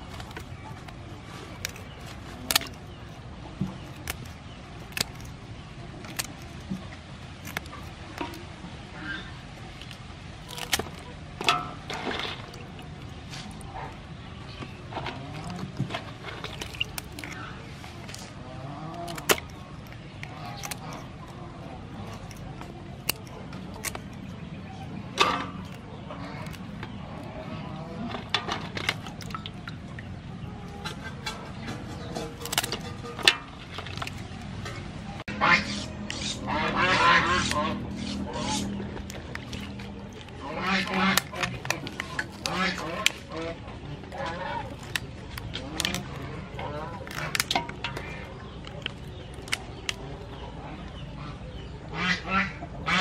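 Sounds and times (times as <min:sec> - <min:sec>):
scissors snipping crab shells: 0:00.0 - 0:08.5, 0:09.3 - 0:14.0, 0:14.6 - 0:29.7, 0:30.8 - 0:34.8, 0:35.7 - 0:50.4
low background rumble: 0:00.0 - 0:53.0.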